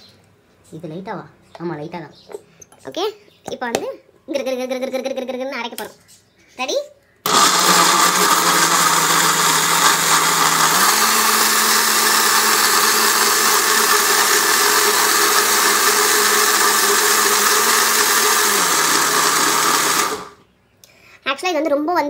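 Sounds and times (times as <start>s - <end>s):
mixer grinder motor whine: 7.3s - 20.4s.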